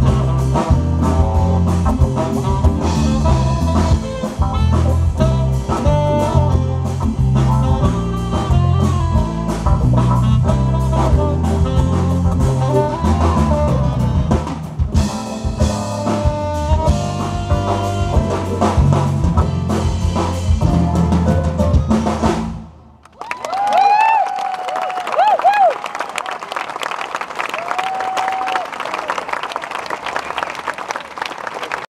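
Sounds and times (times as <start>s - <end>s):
live band playing instrumental: 0.0s - 22.8s
bass line: 0.0s - 22.9s.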